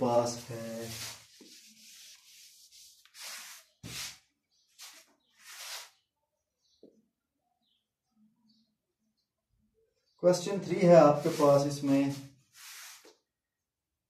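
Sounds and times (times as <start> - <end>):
eraser rubbing whiteboard: 0.6 - 4.2, 4.8 - 6.0, 11.2 - 13.1.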